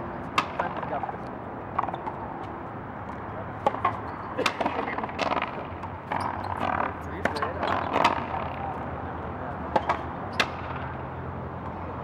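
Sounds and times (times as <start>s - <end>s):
rackets striking ball: 0.3s - 1.2s, 1.8s - 8.7s, 9.7s - 11.0s.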